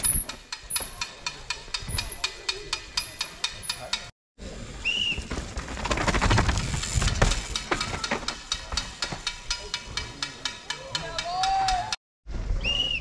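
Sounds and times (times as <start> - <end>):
bike rattling: 0.0 - 4.0, 4.9 - 11.5
mountain bike rushing past: 4.8 - 7.5.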